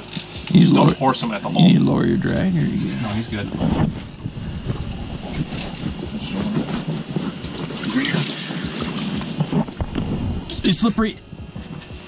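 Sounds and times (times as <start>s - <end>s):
low murmured voices: 0.0s - 12.0s
rustling handling noise: 2.1s - 10.6s.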